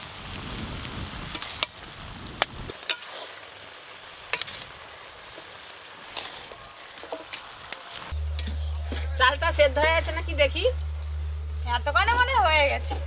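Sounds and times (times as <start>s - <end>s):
faint sizzle: 0.0s - 13.0s
metal spatula stirring vegetables: 2.7s - 10.2s.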